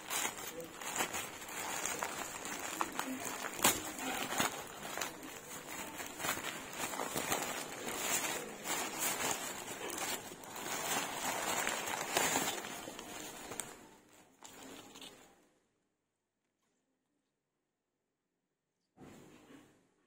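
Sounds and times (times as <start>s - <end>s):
plastic bag crinkling: 0.0s - 15.3s.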